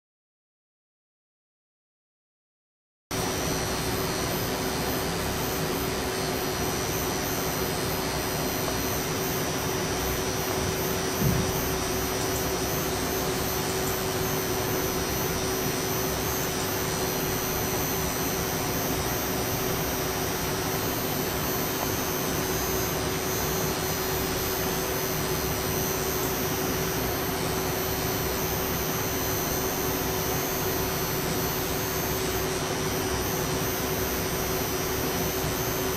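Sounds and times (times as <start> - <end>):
electronic equipment hum: 3.1 - 35.9
fan whir and hiss: 3.2 - 35.9
brief knock: 11.2 - 11.6.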